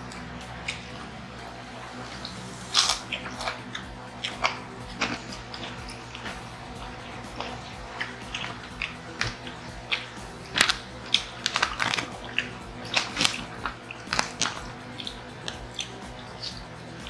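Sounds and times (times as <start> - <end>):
chewing and crunching: 0.0 - 17.0.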